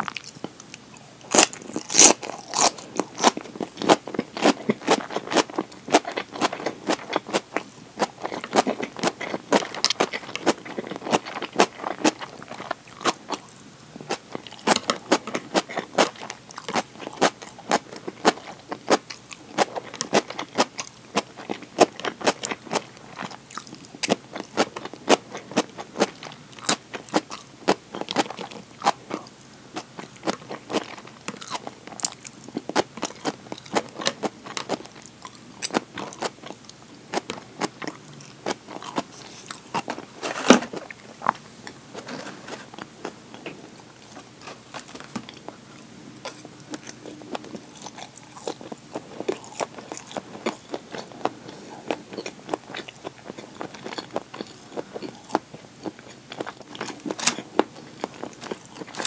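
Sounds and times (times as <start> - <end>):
crunchy chewing and biting: 0.0 - 13.5, 14.1 - 41.4, 42.0 - 59.0.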